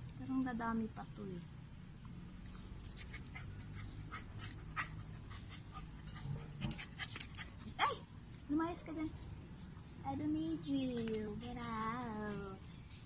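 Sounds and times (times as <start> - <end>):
dog panting and sniffing: 2.8 - 7.8
rustling of soil and plant stems: 10.2 - 13.0.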